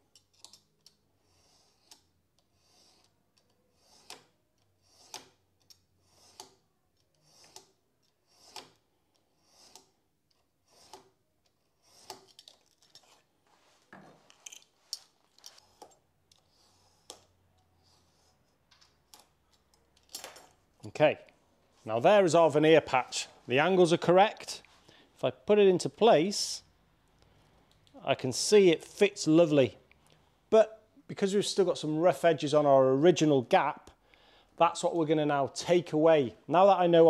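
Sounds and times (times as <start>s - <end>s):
knife scratching through wood: 0.1s - 13.3s, 15.4s - 18.6s.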